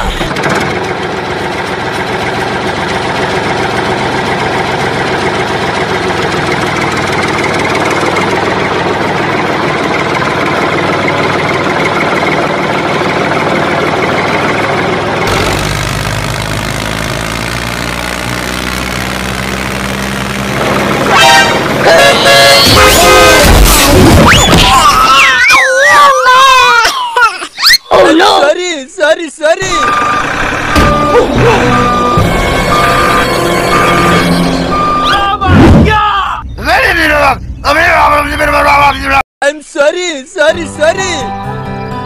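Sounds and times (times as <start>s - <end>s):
tractor engine chugging: 0.0s - 23.4s, 29.6s - 35.4s
vehicle horn honking: 21.0s - 23.7s, 30.8s - 35.2s
music: 30.8s - 35.1s, 40.5s - 42.0s.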